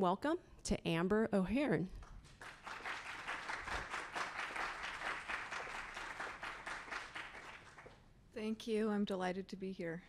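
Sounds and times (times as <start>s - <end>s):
audience applauding: 2.2s - 8.0s.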